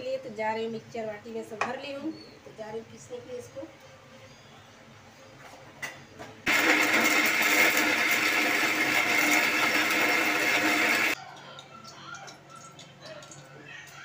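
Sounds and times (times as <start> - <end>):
mixer grinder grinding: 6.5 - 11.2.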